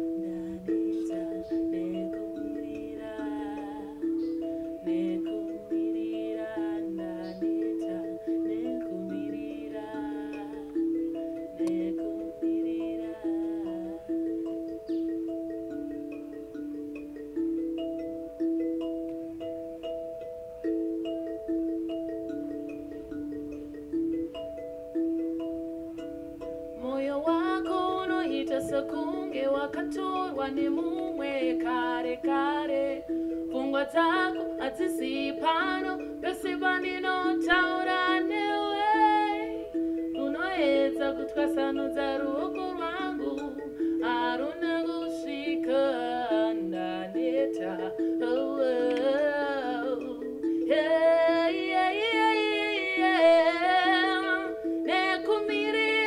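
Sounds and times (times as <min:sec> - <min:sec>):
woman singing: 0:00.0 - 0:14.8, 0:26.8 - 0:56.0.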